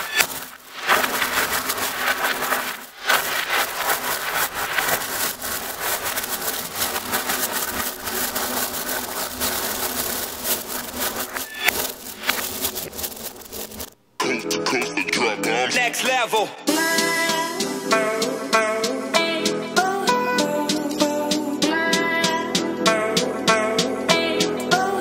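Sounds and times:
magnets and steel balls clattering: 0:00.0 - 0:14.0.

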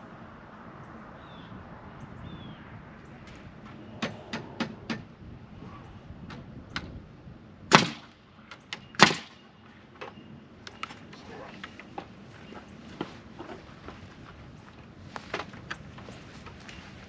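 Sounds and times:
nail gun shots: 0:07.7 - 0:09.4.

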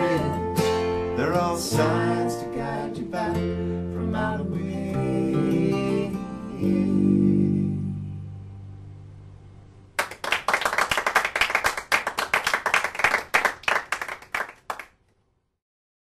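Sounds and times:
audience clapping: 0:10.0 - 0:15.0.

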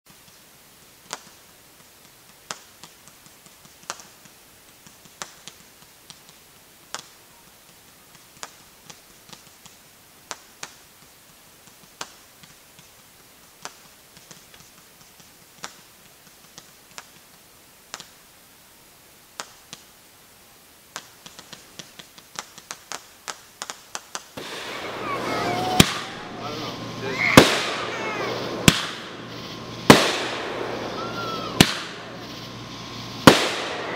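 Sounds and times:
fireworks popping: 0:00.1 - 0:18.4, 0:19.2 - 0:20.0, 0:20.8 - 0:33.9
dense fireworks crackling: 0:00.1 - 0:33.9.

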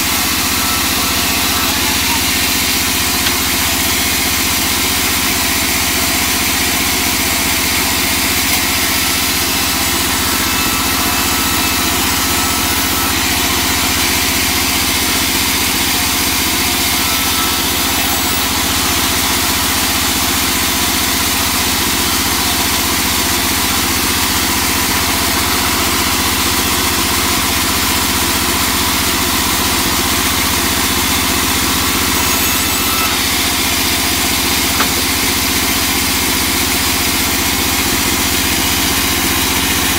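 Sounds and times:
band saw ripping wood: 0:31.2 - 0:36.2.

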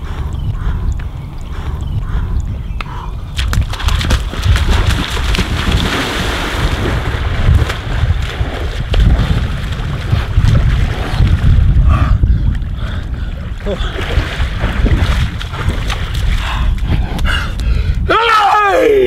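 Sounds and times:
wind buffeting microphone: 0:00.0 - 0:19.0
water splashing: 0:03.3 - 0:11.8, 0:12.8 - 0:16.6.

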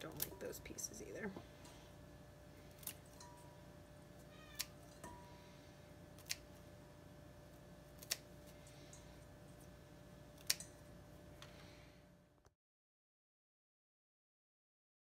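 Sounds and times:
faint steady hum: 0:00.0 - 0:12.5
scissors snipping: 0:02.7 - 0:03.1, 0:04.6 - 0:04.8, 0:06.2 - 0:06.6, 0:08.0 - 0:08.3, 0:10.4 - 0:10.7.

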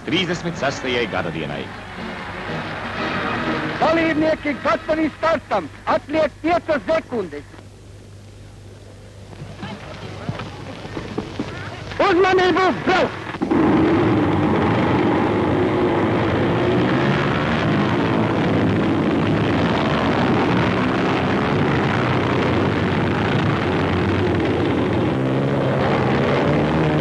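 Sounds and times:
many motorcycle engines droning: 0:08.6 - 0:27.0.

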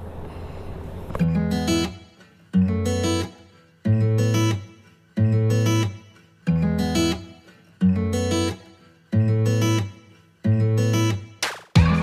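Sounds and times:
plucked guitar loop over bass: 0:11.8 - 0:12.0.

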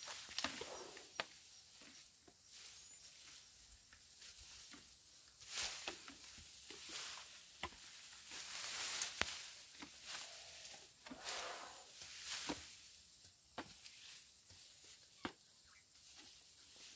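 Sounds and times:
dry grass rustling and crackling: 0:01.7 - 0:16.9
grass snapping: 0:08.6 - 0:09.9.

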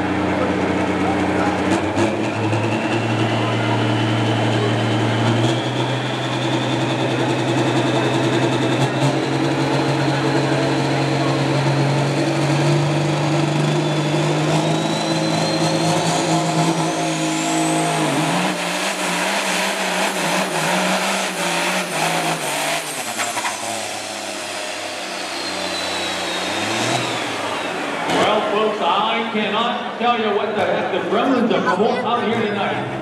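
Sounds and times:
diesel truck engine under load: 0:00.0 - 0:33.0
turbocharger whistle: 0:02.2 - 0:28.6.

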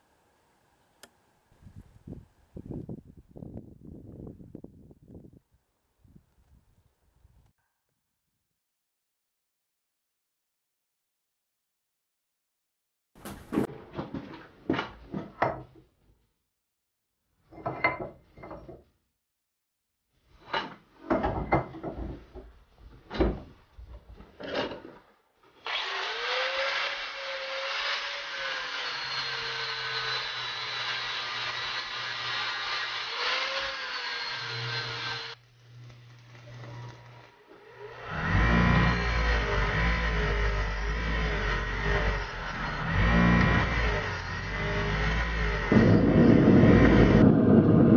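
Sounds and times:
power tool motor running: 0:25.6 - 0:47.2.

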